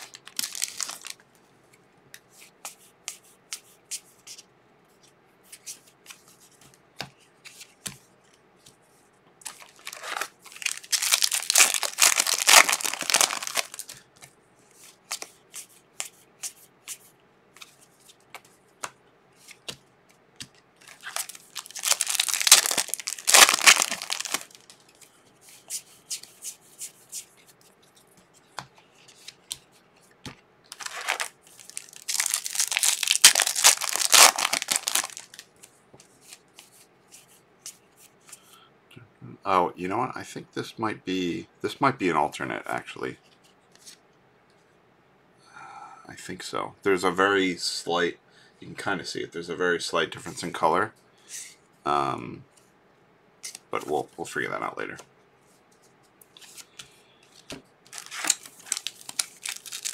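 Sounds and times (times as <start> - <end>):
foil wrappers tearing and crinkling: 0.0 - 1.2, 9.5 - 14.0, 20.9 - 24.8, 30.7 - 35.5, 57.9 - 59.9.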